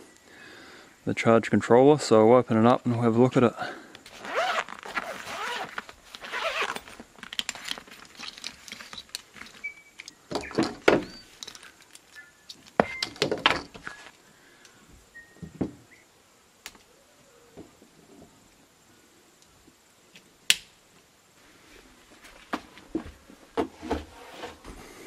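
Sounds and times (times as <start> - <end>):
cables rustling: 4.0 - 10.2, 11.1 - 12.8
zipper pulled open: 4.1 - 7.0.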